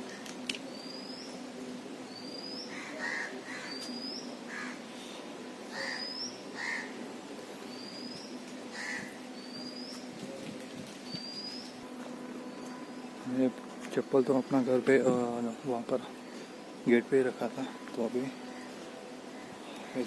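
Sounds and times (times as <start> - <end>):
faint steady hum: 0.0 - 20.0
lower bird calls: 2.1 - 7.0, 7.6 - 10.2, 11.0 - 11.8.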